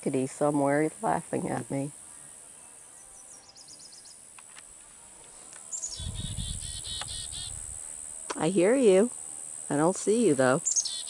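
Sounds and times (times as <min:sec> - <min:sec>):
steady high insect buzz: 0:00.2 - 0:11.0
chickadee calling: 0:05.7 - 0:08.4, 0:10.0 - 0:11.0.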